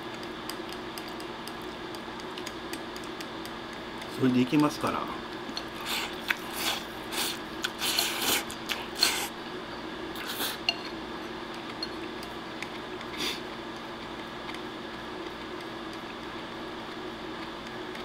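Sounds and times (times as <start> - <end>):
chopsticks clicking against bowl: 0.1 - 4.8
noisy eating mouthfuls: 5.5 - 9.4, 10.1 - 10.7.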